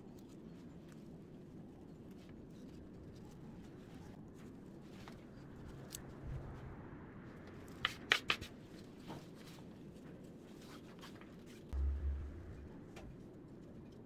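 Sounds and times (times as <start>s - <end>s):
conifer greenery crackling: 11.8s - 12.9s
low bump: 11.8s - 13.2s.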